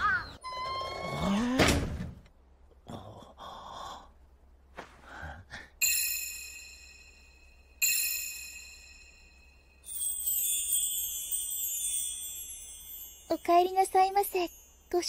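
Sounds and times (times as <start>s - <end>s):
bell-like chime: 5.8s - 15.0s.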